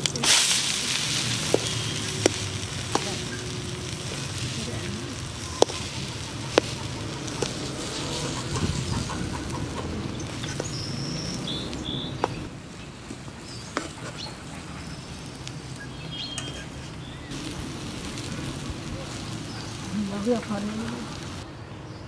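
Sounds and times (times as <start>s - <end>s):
oil sizzling in a pan: 0.0s - 12.5s, 17.3s - 21.4s
bird chirps: 1.4s - 17.4s.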